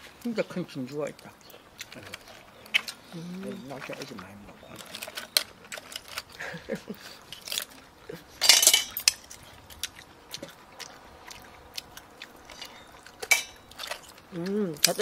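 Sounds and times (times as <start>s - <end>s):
loud crackling crunch: 0.1s - 7.9s, 8.8s - 15.0s
shells and utensils clattering on metal: 7.2s - 7.7s, 8.4s - 9.4s, 12.5s - 14.1s, 14.8s - 15.0s.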